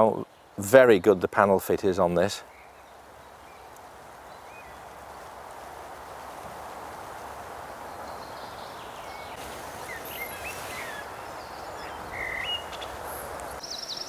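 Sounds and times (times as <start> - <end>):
steady outdoor hiss: 0.0 - 14.0
bird chirps: 7.9 - 14.0.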